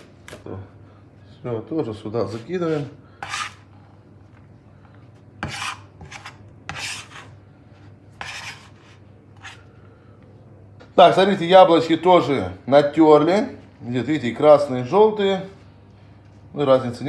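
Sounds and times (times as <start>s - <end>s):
hands scraping on cutting board: 2.3s - 3.6s, 5.4s - 7.3s, 8.2s - 9.6s.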